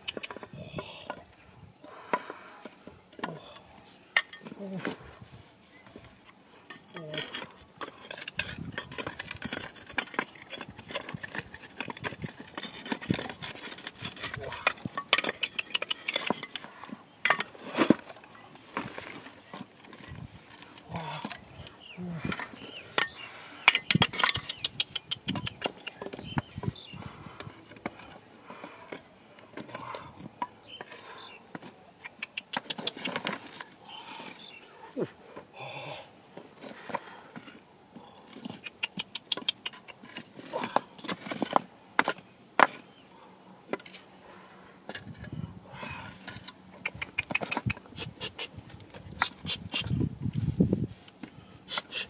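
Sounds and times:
rocks knocking and scraping: 5.8 - 35.2, 36.4 - 42.9.

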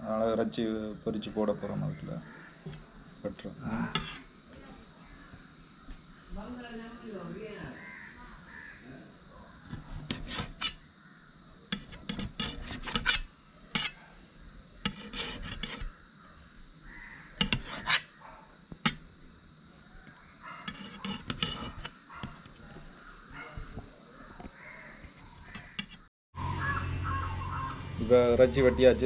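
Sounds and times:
knife cutting meat on metal plate: 3.9 - 4.3, 9.6 - 10.8, 11.7 - 14.0, 14.8 - 15.9, 17.4 - 18.1, 18.8 - 19.0, 20.6 - 22.6, 25.4 - 26.0.

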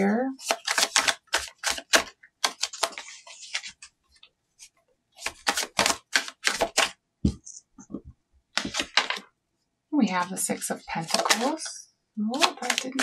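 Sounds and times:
cards being shuffled: 0.4 - 3.9, 4.6 - 7.9, 8.6 - 9.2, 10.9 - 11.7, 12.4 - 13.0
papery rustle: 12.4 - 13.0.

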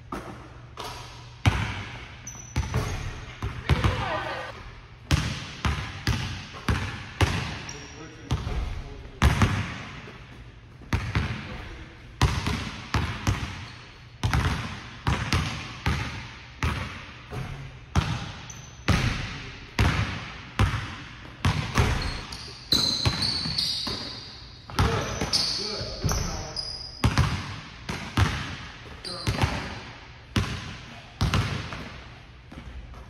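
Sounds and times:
shoe squeaks: 2.2 - 3.4, 7.6 - 8.1, 13.6 - 14.1, 18.5 - 18.9, 21.8 - 27.0, 29.0 - 29.5
basketball bouncing on hardwood: 14.2 - 18.3, 18.9 - 22.2.

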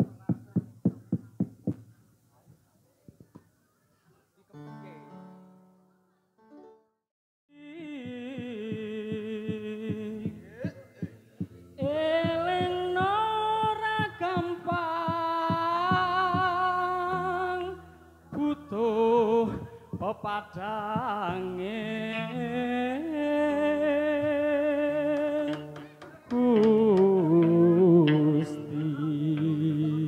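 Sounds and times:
person humming a melody: 7.5 - 10.9, 11.8 - 30.0.

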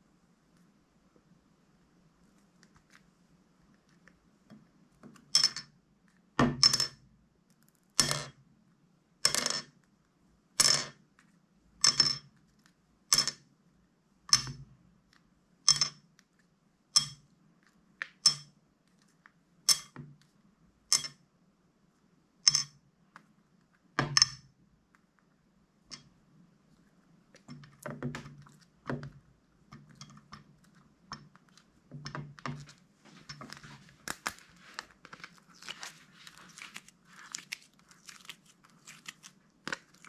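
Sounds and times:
slime squishing: 29.8 - 40.0.

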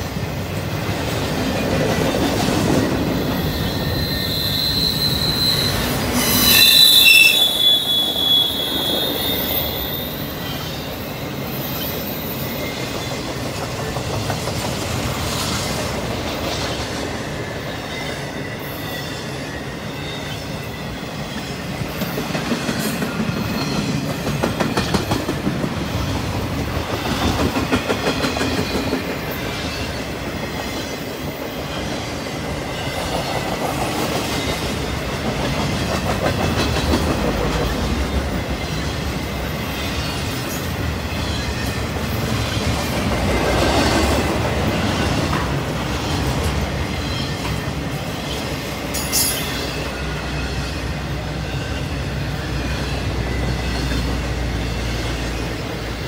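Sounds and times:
freight train rumble: 0.0 - 56.0
train wheels clicking over rail joints: 12.5 - 17.4, 21.3 - 50.4.

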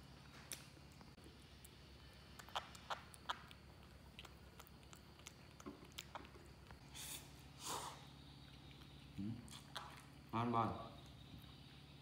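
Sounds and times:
low steady hum: 0.0 - 12.0
monkey chewing smacks: 2.3 - 6.8.

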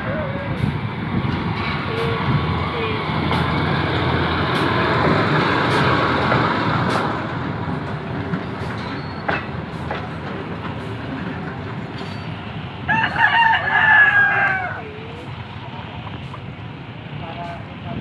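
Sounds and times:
locomotive passing on rails: 0.0 - 18.0
rooster crowing: 12.9 - 15.0.

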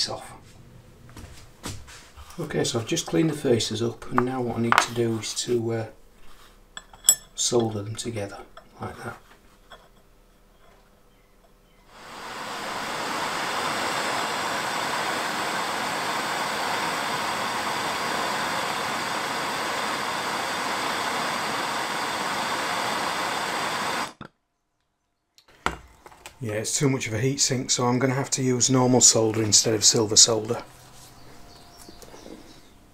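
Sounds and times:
blowtorch flame hissing: 11.9 - 24.2.

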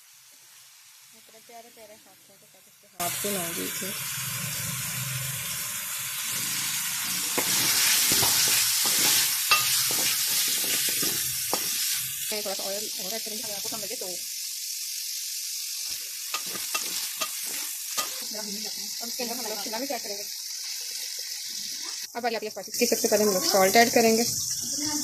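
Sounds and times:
food sizzling in hot oil: 0.0 - 25.0
wooden spatula scraping pan: 7.1 - 11.9, 16.3 - 18.2.

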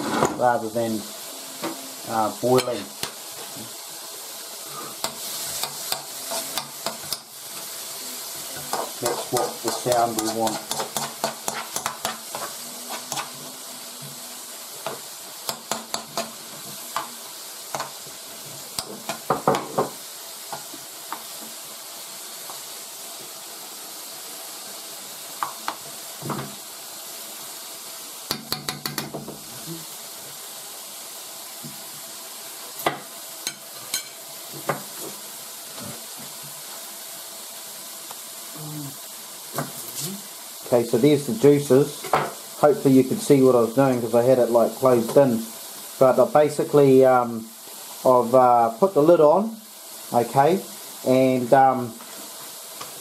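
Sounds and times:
mushrooms sizzling in a wok: 0.0 - 53.0
metal spoon scraping a pan: 4.6 - 7.8, 8.4 - 13.6.

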